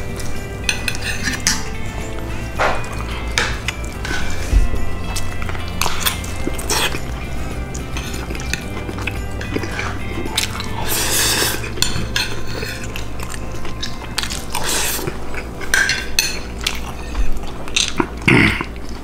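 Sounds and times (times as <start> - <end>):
background music: 0.0 - 19.0
fork clinking and scraping on plate: 0.6 - 1.8, 7.8 - 18.0.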